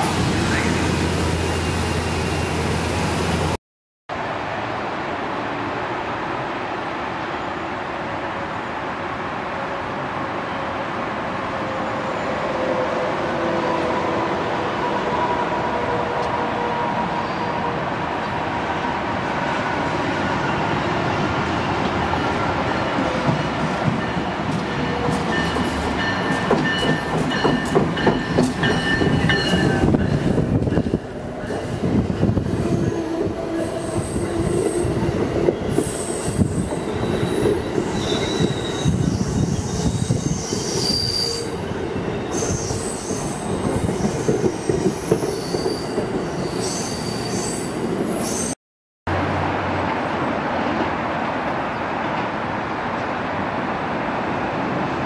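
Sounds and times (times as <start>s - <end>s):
rushing train noise: 0.0s - 55.0s
train wheel squeals: 22.0s - 31.0s, 31.6s - 48.6s.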